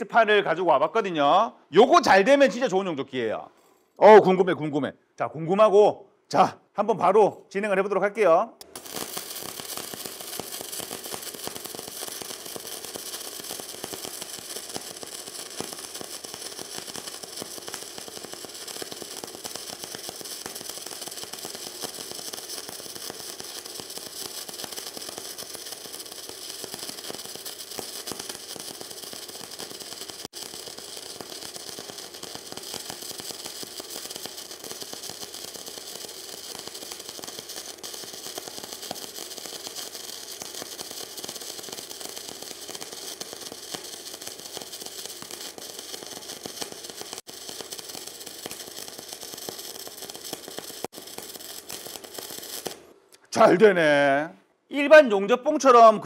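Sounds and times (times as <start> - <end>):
welding arc: 8.6 - 53.0.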